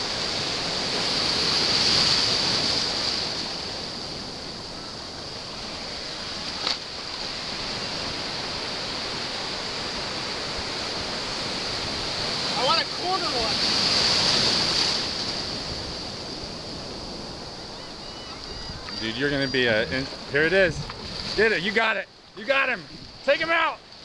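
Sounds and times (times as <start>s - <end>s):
waves breaking in surf: 0.0s - 24.0s.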